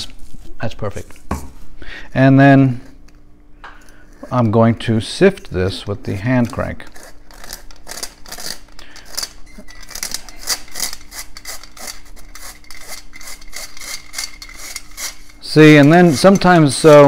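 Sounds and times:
flour sifter rasping scrape: 10.2s - 17.0s.

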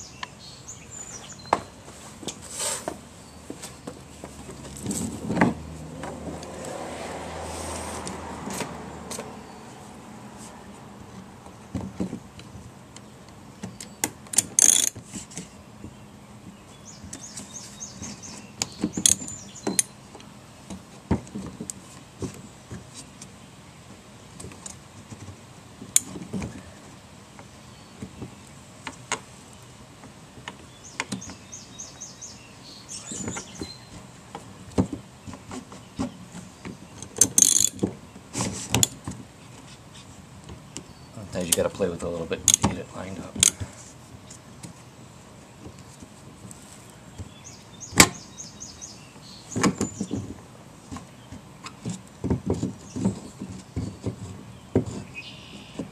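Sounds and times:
spanner clicking and scraping: 14.3s - 15.0s, 37.0s - 37.8s, 42.4s - 42.7s
ratchet clicking: 14.4s - 15.0s, 37.2s - 37.8s.

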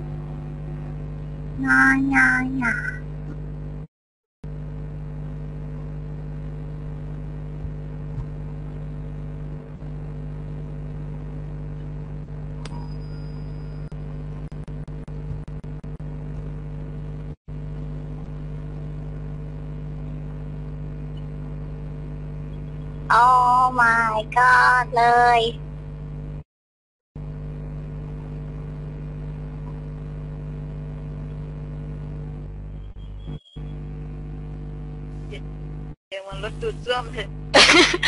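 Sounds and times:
steady mechanical drone: 0.0s - 3.9s.

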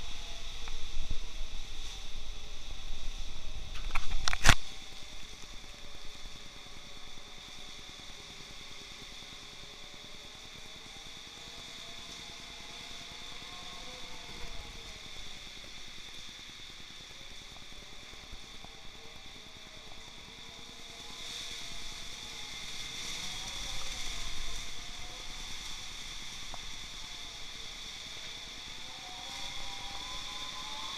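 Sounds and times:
wind rumbling against microphone: 0.0s - 9.1s
heavy rain and wind hiss: 0.0s - 30.9s.

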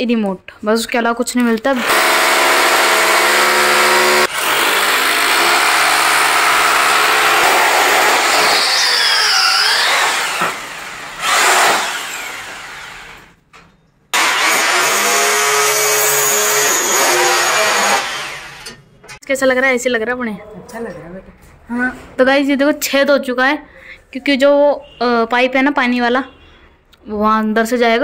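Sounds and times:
electric drill boring into masonry: 1.7s - 13.4s, 14.2s - 18.8s.

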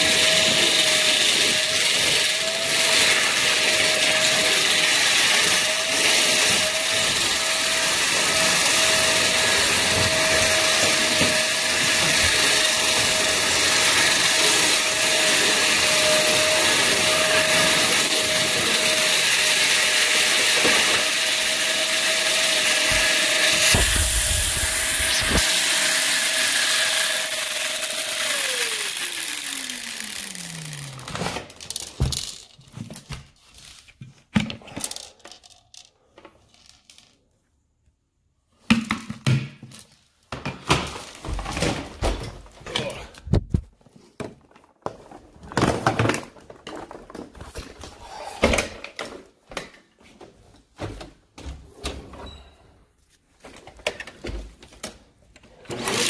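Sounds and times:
vacuum cleaner motor whine: 0.0s - 31.4s, 55.7s - 56.0s.

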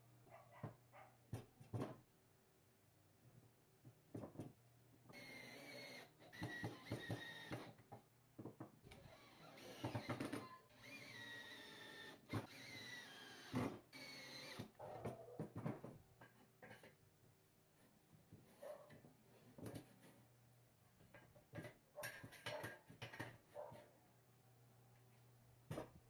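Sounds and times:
knocks and clatter of workpieces: 0.6s - 2.1s, 3.8s - 4.6s, 6.4s - 9.0s, 9.8s - 10.6s, 15.0s - 17.2s, 17.8s - 20.3s, 20.9s - 23.9s, 25.7s - 26.0s
small electric power tool whine: 5.1s - 7.8s, 8.9s - 14.8s.

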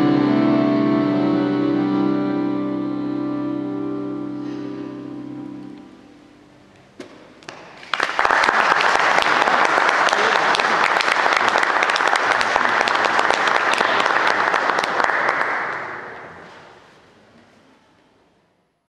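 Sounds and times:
audience applauding: 7.5s - 16.6s.

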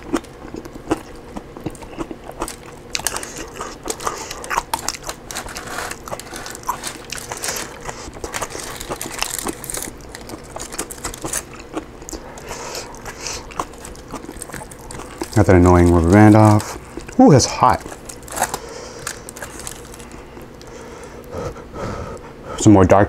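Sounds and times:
roast chicken crackling apart: 2.3s - 20.8s.

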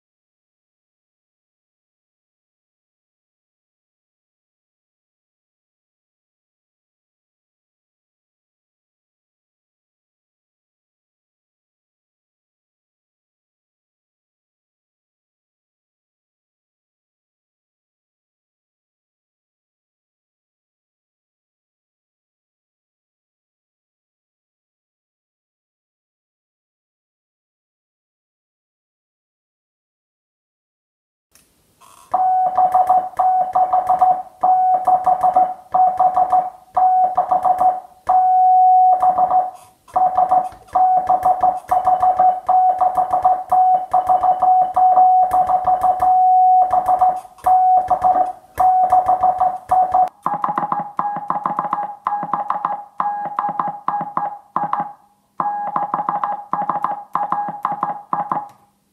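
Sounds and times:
morse code beeps: 32.1s - 58.5s.

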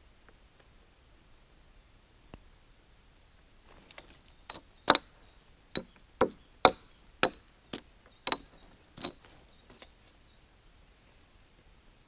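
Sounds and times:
hatchet chopping log: 4.5s - 5.1s, 5.8s - 7.5s, 8.3s - 9.2s.

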